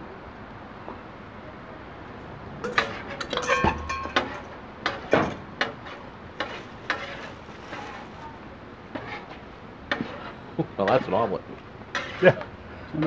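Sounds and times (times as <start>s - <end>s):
steel mixing bowl clinking: 2.6s - 4.6s
metal spatula scraping a griddle: 5.8s - 8.2s, 8.9s - 11.3s, 11.9s - 12.4s.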